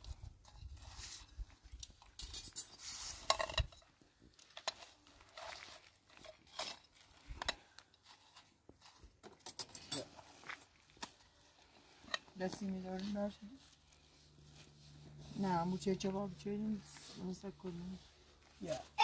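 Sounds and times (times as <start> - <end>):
metal utensils and dishes clinking: 9.2 - 10.3.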